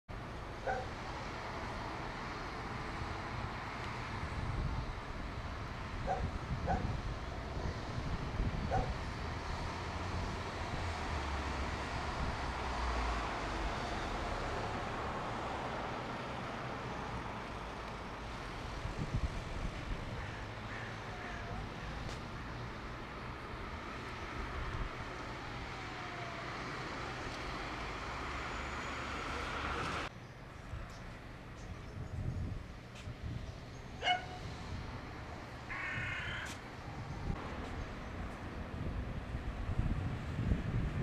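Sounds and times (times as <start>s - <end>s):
outdoor background hum: 0.1s - 41.0s
short animal calls: 35.7s - 36.6s.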